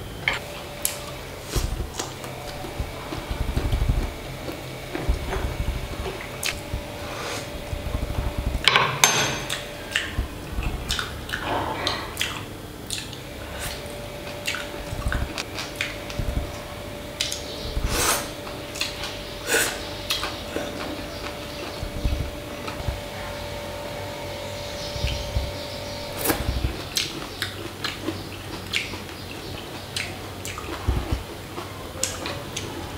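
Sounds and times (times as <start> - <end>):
faint steady hum: 0.0 - 32.9
mouth noises of eating: 0.3 - 8.7, 9.5 - 23.6, 26.1 - 32.9.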